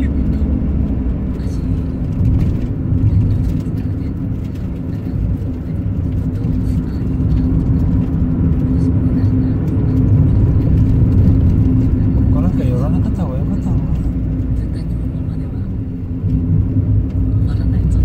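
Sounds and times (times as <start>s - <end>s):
car engine and tyres on wet road: 0.0s - 18.0s.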